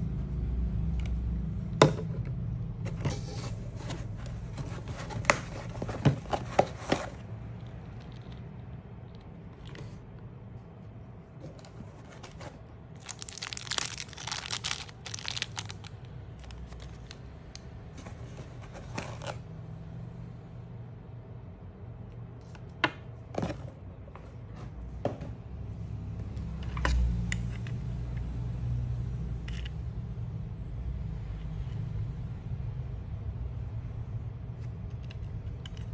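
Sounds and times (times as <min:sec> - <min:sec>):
plastic packaging crinkling: 0:11.5 - 0:17.2.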